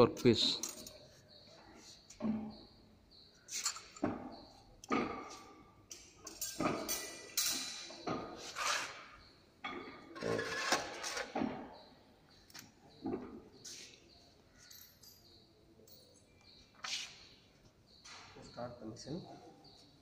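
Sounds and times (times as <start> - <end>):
metal knocks and clanks: 3.7 - 8.4.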